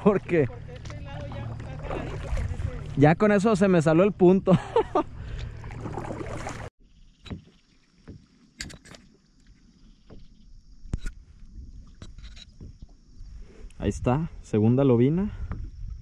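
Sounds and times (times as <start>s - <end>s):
paddle splashing in water: 0.5s - 3.1s, 5.3s - 6.7s.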